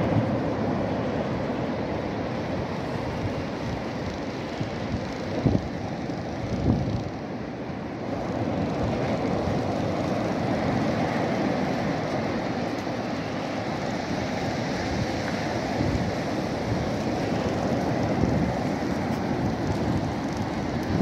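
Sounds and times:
breaking surf: 0.0 - 21.0
wind roar: 8.0 - 21.0.

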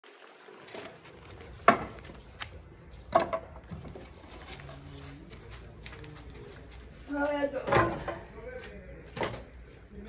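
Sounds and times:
logs knocking together: 1.6 - 2.2.

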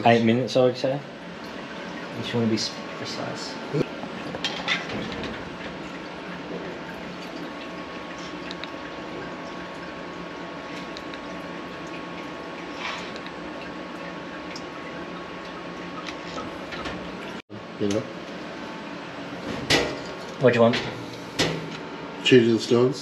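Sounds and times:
machine hum and hiss: 0.0 - 23.0
oil trickling and dripping: 1.2 - 17.4.

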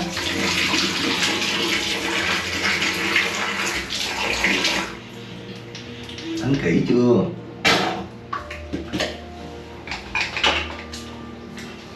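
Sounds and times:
water splashing face washing: 0.0 - 6.6.

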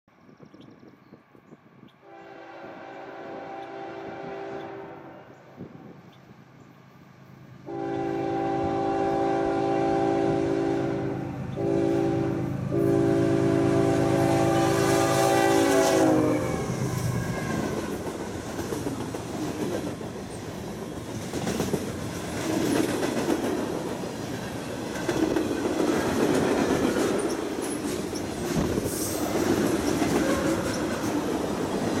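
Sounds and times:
locomotive air horn: 2.0 - 5.4, 7.6 - 17.9, 30.0 - 30.9
train wheels clickety-clack: 16.7 - 32.0.

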